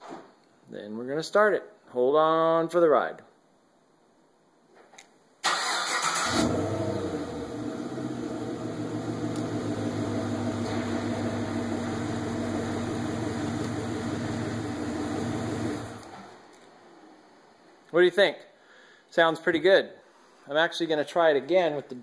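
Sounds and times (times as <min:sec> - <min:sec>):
car engine starting and idling: 0:05.4 - 0:16.3.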